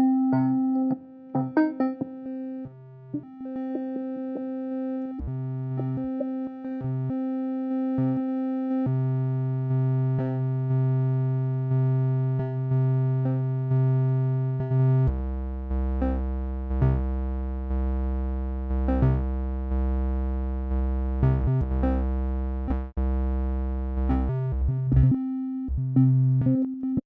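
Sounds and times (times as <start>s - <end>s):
pulsing synthesizer music: 0.4s - 8.8s
low bass tone: 15.1s - 26.7s.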